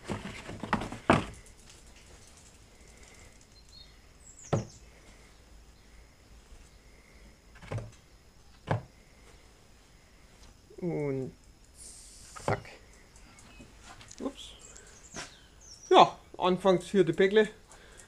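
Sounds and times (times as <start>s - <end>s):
egg cartons rustling and knocking: 0.0s - 3.5s, 4.4s - 4.9s, 7.5s - 9.0s.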